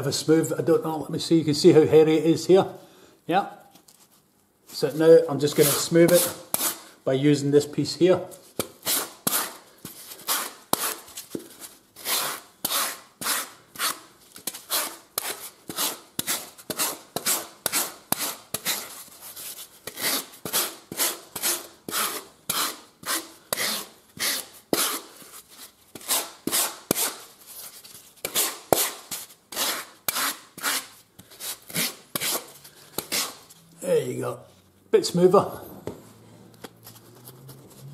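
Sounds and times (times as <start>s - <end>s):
rasp scraping foam: 5.4s - 6.9s, 8.8s - 11.1s, 12.0s - 33.5s.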